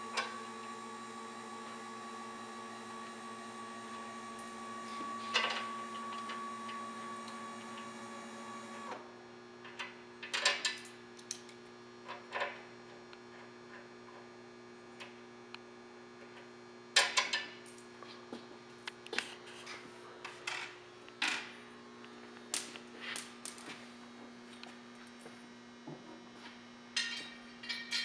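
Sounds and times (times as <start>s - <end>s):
electric actuator motor humming: 0.0s - 9.0s.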